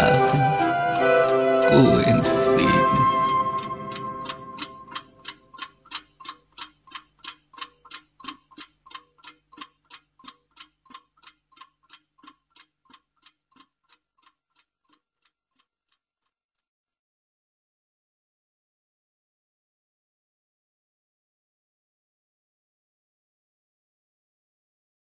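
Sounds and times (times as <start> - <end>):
clock ticking: 0.0 - 16.4.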